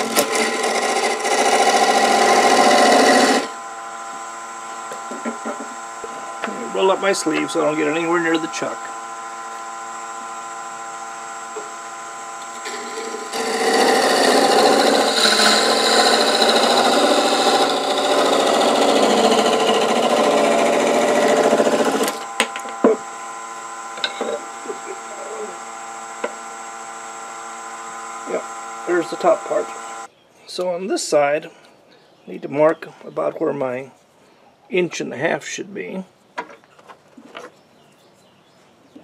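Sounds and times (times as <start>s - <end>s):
lathe motor humming: 0.0s - 30.1s
lathe tool scraping hiss: 0.0s - 30.1s.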